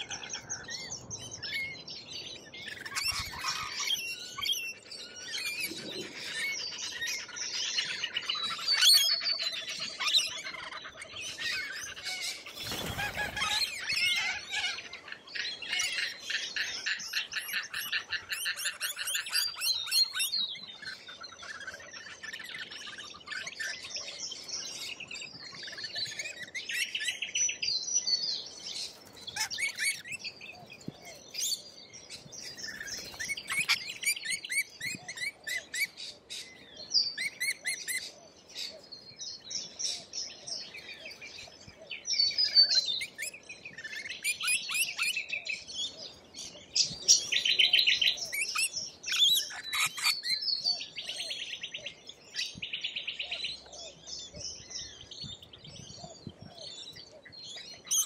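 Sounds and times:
parrots screeching and chattering: 0:02.6 - 0:23.9, 0:29.0 - 0:30.3, 0:32.4 - 0:36.0, 0:37.2 - 0:38.0, 0:43.0 - 0:45.1, 0:48.2 - 0:50.4.

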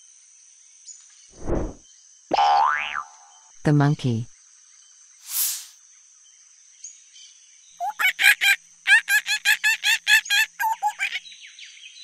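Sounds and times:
monkey chattering calls: 0:07.8 - 0:11.2.

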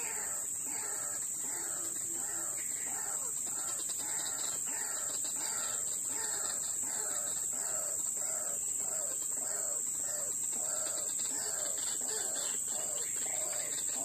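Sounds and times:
waterhen croaking calls: 0:00.0 - 0:14.0.

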